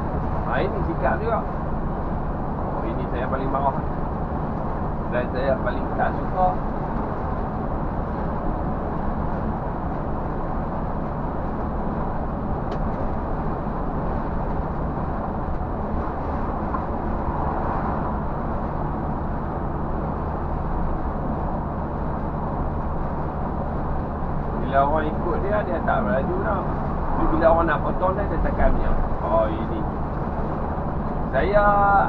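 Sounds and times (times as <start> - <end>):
coach engine and road drone: 0.0 - 32.0.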